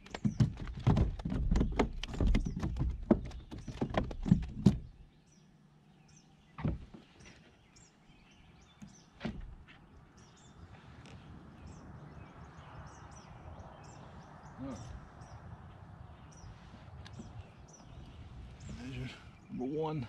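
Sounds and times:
knocks and taps in a plastic kayak: 0:00.0 - 0:05.0, 0:06.6 - 0:07.4.

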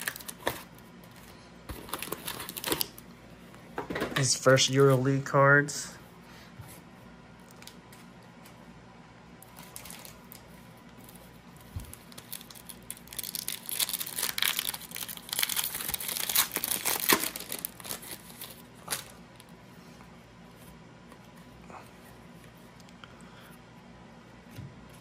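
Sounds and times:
foil wrapper tearing and crinkling: 0:00.0 - 0:00.7, 0:01.8 - 0:03.0, 0:09.5 - 0:10.4, 0:11.8 - 0:19.5.

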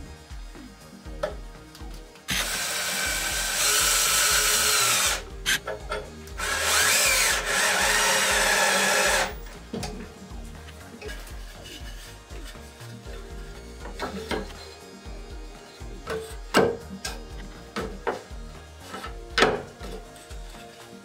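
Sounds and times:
faint background music: 0:00.0 - 0:21.0
cordless drill driving screws: 0:02.3 - 0:10.0.

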